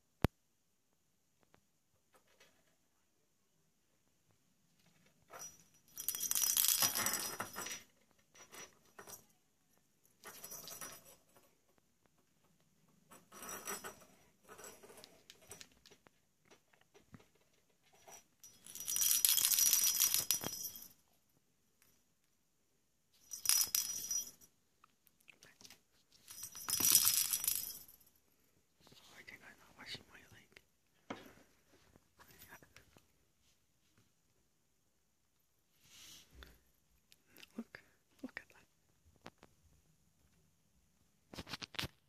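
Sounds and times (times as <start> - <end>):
bell jingling in toy ball: 5.3 - 7.8, 18.0 - 21.0, 23.2 - 24.5, 26.2 - 28.0.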